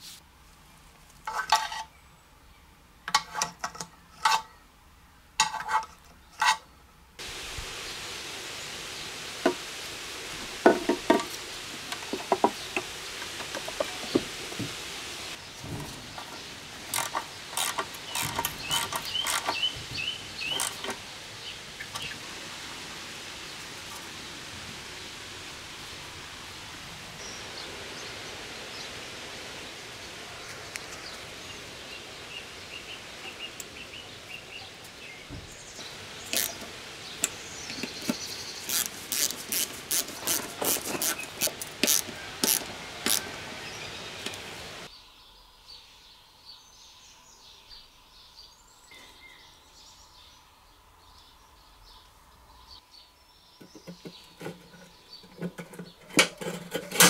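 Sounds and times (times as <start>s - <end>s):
tools scraping metal housing: 5.4s - 6.6s, 15.8s - 19.6s, 54.4s - 57.0s
birds chirping: 6.2s - 56.7s.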